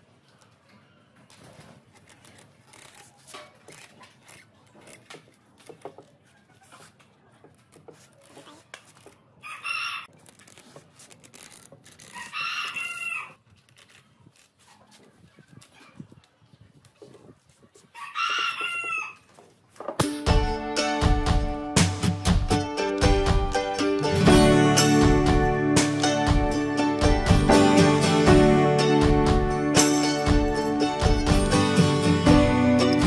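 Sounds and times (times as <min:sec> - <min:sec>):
cane webbing crackling and snapping: 0:01.3 - 0:06.9, 0:07.5 - 0:09.2, 0:10.1 - 0:15.8
rooster crowing: 0:09.4 - 0:10.1, 0:12.1 - 0:13.4, 0:17.9 - 0:19.3.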